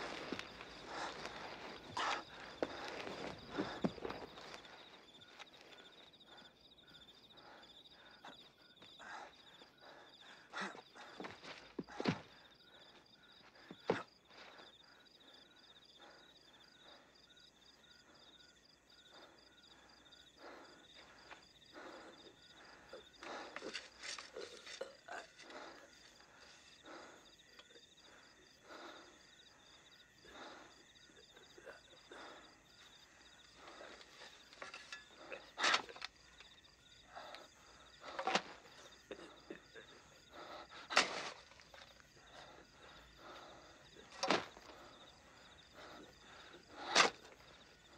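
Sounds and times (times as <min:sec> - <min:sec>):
crickets chirping: 0:00.0 - 0:47.9
shovel scraping soil: 0:40.9 - 0:41.6, 0:46.8 - 0:47.4.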